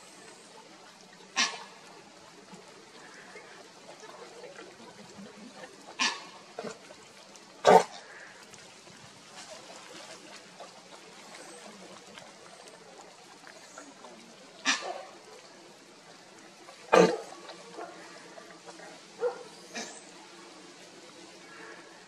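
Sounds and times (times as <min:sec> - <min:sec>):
faint water noise: 0:00.0 - 0:22.0
dogs lapping water: 0:02.9 - 0:20.1.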